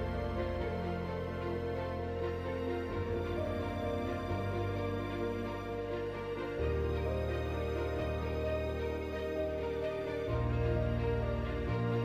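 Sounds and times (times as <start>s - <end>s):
slow background music: 0.0s - 12.0s.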